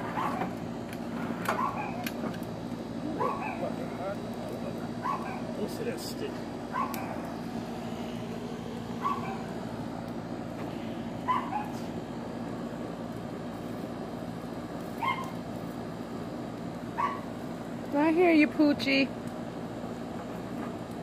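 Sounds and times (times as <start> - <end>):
background hum: 0.0 - 21.0
dog barking: 0.2 - 0.5, 1.5 - 2.0, 3.2 - 3.7, 5.0 - 5.5, 6.7 - 7.2, 9.0 - 9.5, 11.2 - 11.8, 15.0 - 15.4, 17.0 - 17.3.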